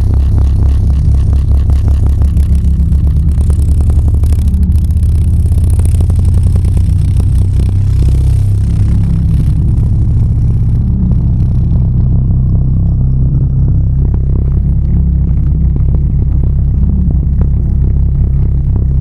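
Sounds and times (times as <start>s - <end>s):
liquid rattling on a speaker cone: 0.0s - 12.3s
deep bass drone: 0.0s - 19.0s.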